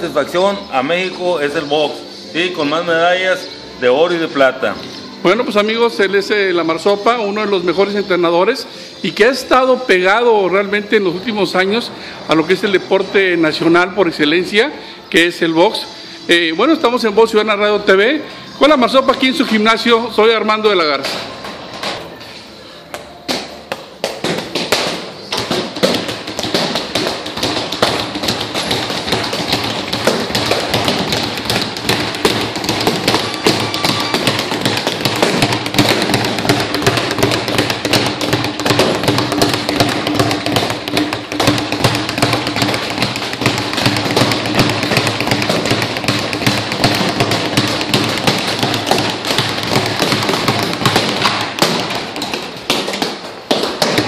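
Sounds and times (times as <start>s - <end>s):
music playing: 0.0s - 54.0s
punches on a hanging bag: 24.2s - 54.0s
speed bag rattling: 25.4s - 54.0s.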